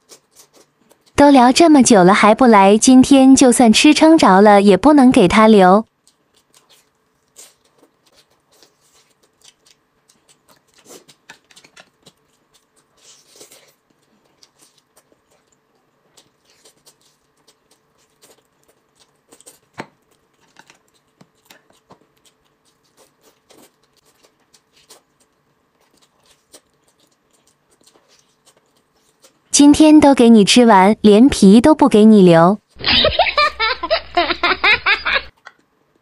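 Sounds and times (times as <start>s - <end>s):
chewing and biting meat: 0.0s - 1.2s, 5.9s - 29.5s.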